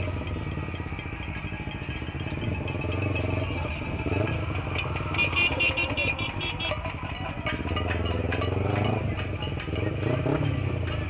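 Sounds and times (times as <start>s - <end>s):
motorcycle engine running: 0.0s - 11.0s
horn short beeps: 5.1s - 6.8s.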